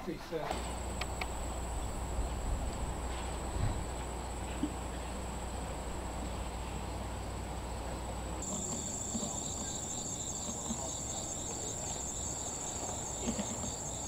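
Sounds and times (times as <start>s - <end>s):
insects trilling: 0.6s - 14.0s.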